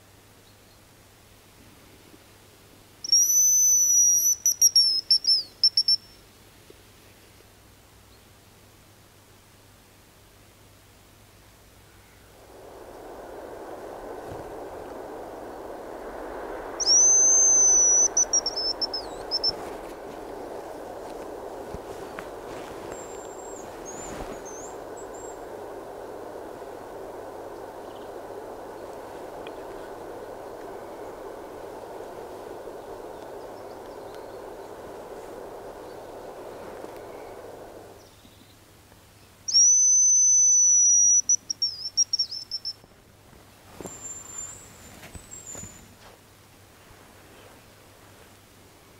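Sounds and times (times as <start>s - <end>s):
decoy whistle high notes: 3.0s - 6.2s, 12.4s - 38.0s, 39.5s - 42.8s
high thin decoy whistle: 3.0s - 6.2s, 16.6s - 25.4s, 39.5s - 42.8s.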